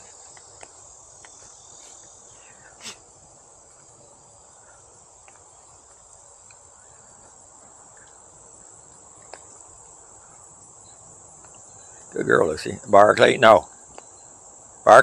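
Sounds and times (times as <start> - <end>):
insects chorus: 0.0 - 15.0
faint ticks: 5.2 - 8.2, 8.8 - 10.4.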